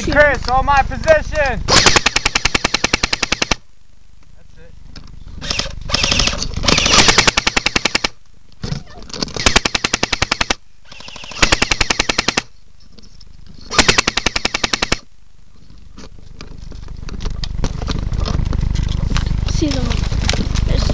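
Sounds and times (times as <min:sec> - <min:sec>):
airsoft gun firing full auto: 0:01.7 - 0:03.6, 0:05.5 - 0:08.2, 0:09.4 - 0:12.5, 0:13.7 - 0:15.1.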